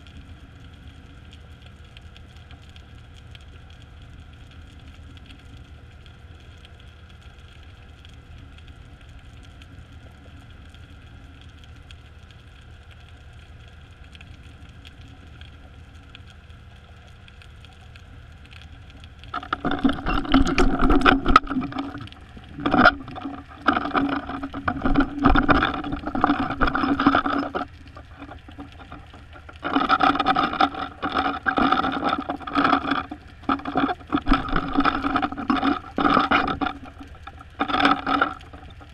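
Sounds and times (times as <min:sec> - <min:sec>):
underwater mechanical hum: 0:00.0 - 0:38.9
rough knocking and scraping: 0:19.4 - 0:38.9.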